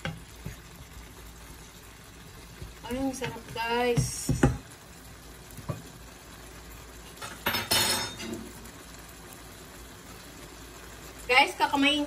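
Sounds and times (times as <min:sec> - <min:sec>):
wooden spoon scraping frying pan: 0:00.0 - 0:01.0.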